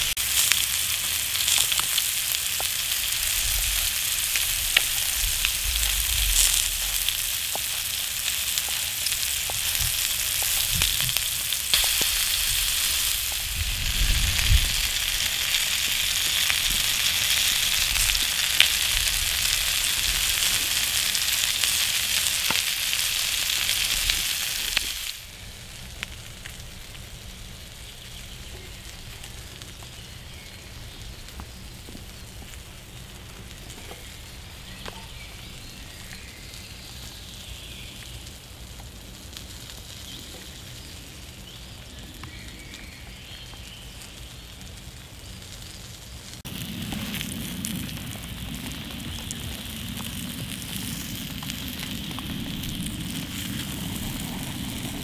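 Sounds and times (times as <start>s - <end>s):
pan sizzling: 0.0s - 27.0s, 45.5s - 55.0s
steady rain: 0.0s - 55.0s
wood fire crackling: 0.0s - 55.0s.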